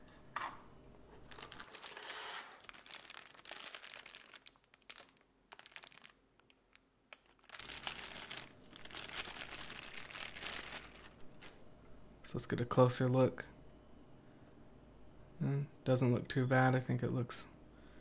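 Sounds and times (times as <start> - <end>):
plastic packaging crinkling: 1.1 - 11.6.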